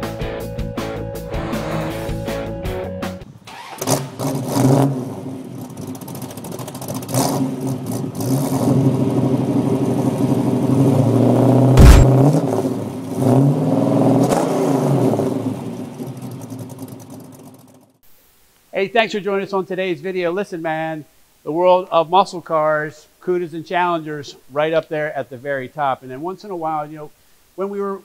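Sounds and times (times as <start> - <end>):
car engine revving: 1.2 - 2.5, 11.7 - 15.2
heavy low thump: 11.8 - 12.2.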